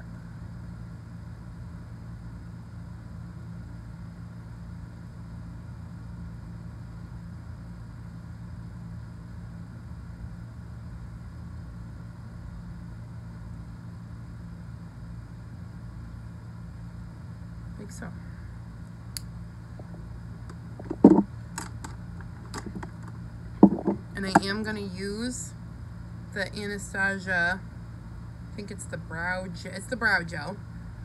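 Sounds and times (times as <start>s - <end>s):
low machine hum: 0.0s - 31.0s.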